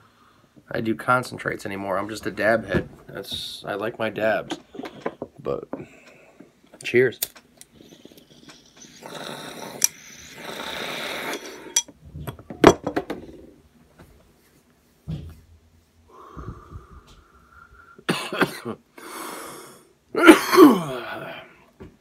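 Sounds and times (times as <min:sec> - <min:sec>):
person exhaling: 0:16.1 - 0:18.1
person inhaling smoke: 0:16.1 - 0:18.1
person coughing: 0:18.1 - 0:18.8, 0:20.2 - 0:21.4.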